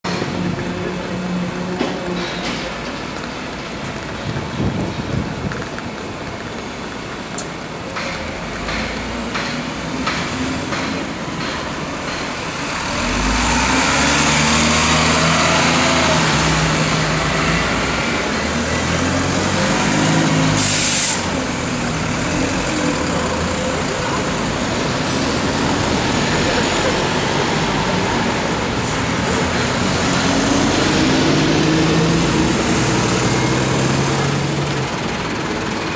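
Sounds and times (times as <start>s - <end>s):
bus engines revving: 0.1s - 35.9s
air brake hiss: 20.6s - 21.4s.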